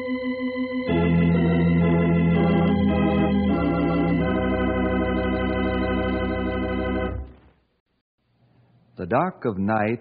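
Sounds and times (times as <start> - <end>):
organ playing sustained chords: 0.0 - 7.4.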